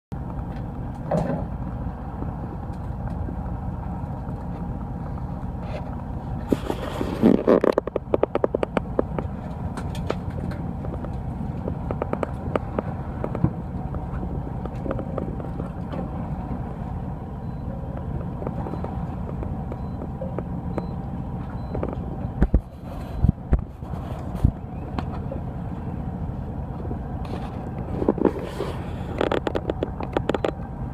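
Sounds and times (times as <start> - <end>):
boat engine humming: 0.1 - 30.9.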